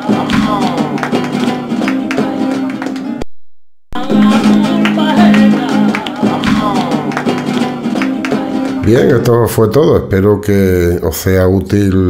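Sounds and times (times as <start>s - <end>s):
acoustic guitar: 0.0s - 3.2s, 4.0s - 10.3s
people clapping along: 0.0s - 3.2s, 4.0s - 9.2s
woman singing: 0.0s - 3.2s, 4.0s - 8.8s.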